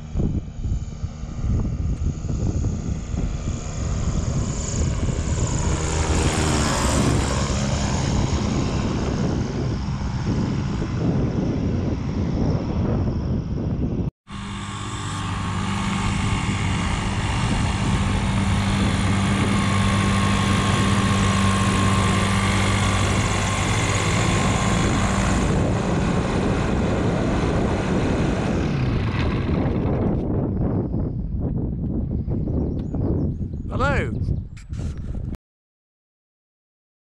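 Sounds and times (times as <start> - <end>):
microlight engine and propeller: 0.0 - 35.4
rough noisy rush: 14.3 - 30.0.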